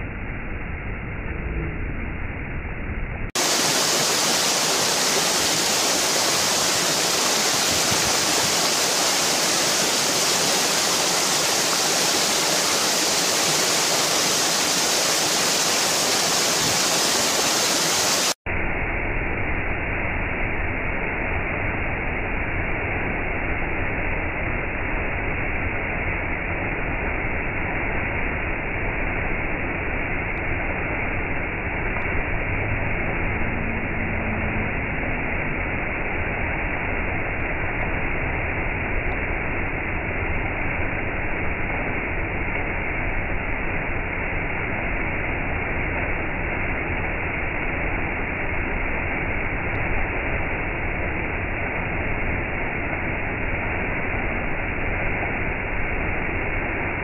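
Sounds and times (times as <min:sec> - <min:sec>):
waterfall rushing: 0:03.4 - 0:18.4, 0:32.1 - 0:40.0.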